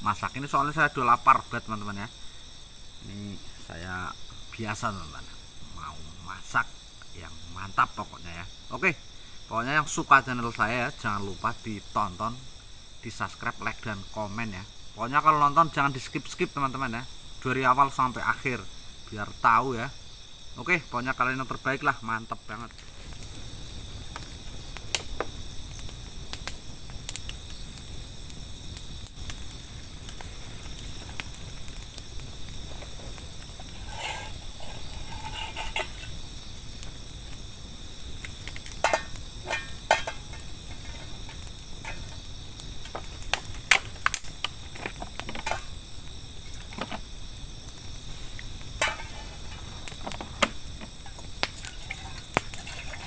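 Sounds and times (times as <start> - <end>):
campfire crackling: 0.0 - 53.0
insects chirring: 0.0 - 53.0
cooking pan knocks and clinks: 38.8 - 41.1, 48.8 - 49.3.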